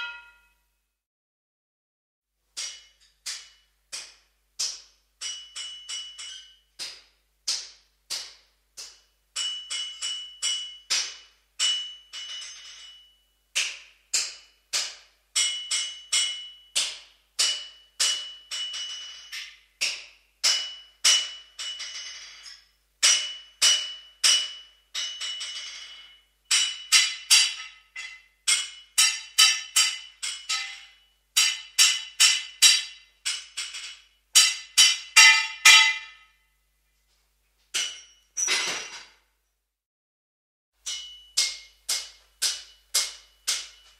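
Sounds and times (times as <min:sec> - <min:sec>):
hammer striking metal ringing: 0:00.0 - 0:00.6, 0:09.4 - 0:36.4, 0:37.8 - 0:39.1, 0:40.8 - 0:43.9.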